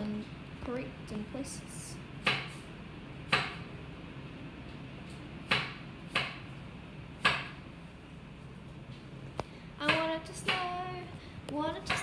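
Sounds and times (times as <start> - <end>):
low background noise: 0.0 - 12.0
sharp knocks: 3.3 - 3.7, 5.5 - 6.4, 7.2 - 7.6.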